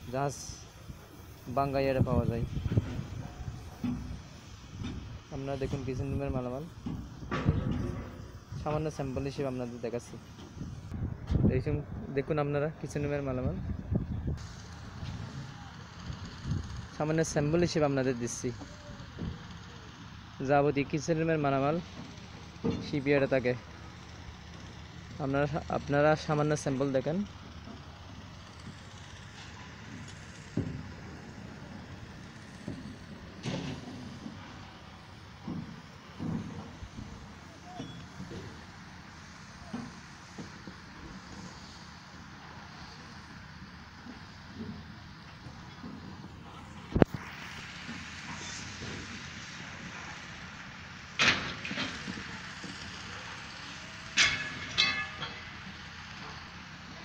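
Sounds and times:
loud metal clanks: 51.2 - 52.8, 54.1 - 56.4
metal rattle: 54.1 - 56.5.

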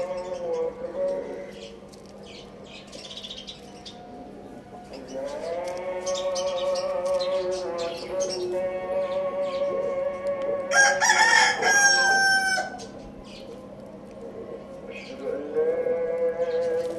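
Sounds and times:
rooster crowing: 10.7 - 12.9.

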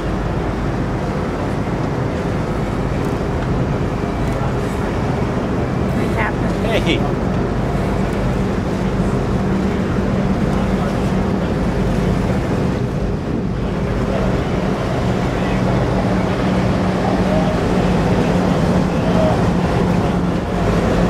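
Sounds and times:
boat engine running: 0.0 - 21.0
wind and water rushing: 0.0 - 21.0.

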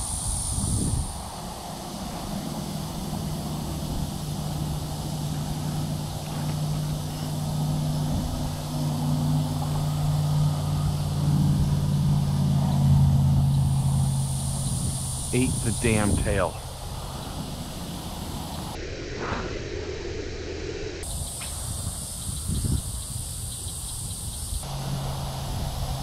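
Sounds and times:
faint outdoor hiss: 0.0 - 18.8, 21.0 - 26.0
distant engine humming: 0.0 - 26.0.

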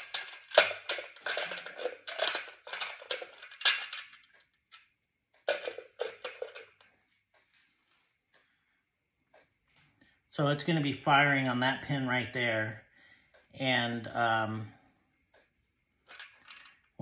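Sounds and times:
plastic cap clattering on housing: 0.0 - 4.2, 5.5 - 6.8.

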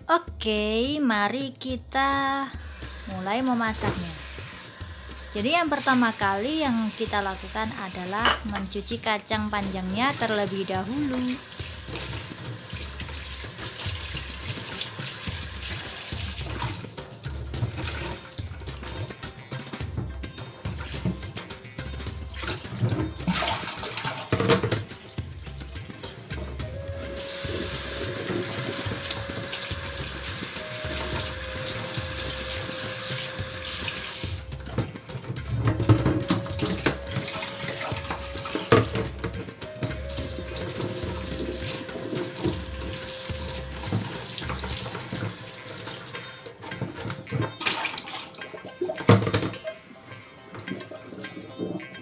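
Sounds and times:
colander knocking: 7.4 - 21.3, 22.0 - 48.3
splashing water: 9.6 - 19.2, 22.3 - 49.3
tap running into metal sink: 22.8 - 25.0, 27.1 - 47.6.

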